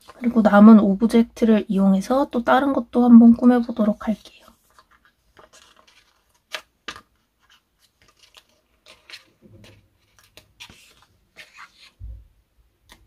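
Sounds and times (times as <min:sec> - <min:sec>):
sticker sheet crinkling: 0:03.5 - 0:12.0.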